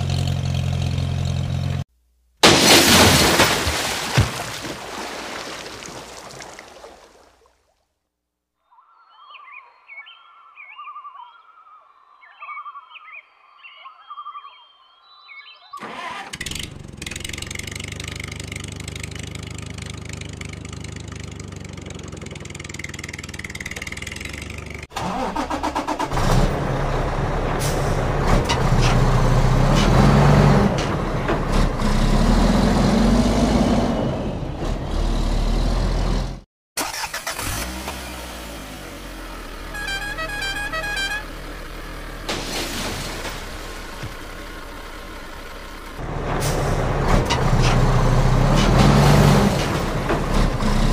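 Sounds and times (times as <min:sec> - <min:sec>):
engine revving: 0:15.8 - 0:50.9
engine starting and running: 0:15.8 - 0:50.9.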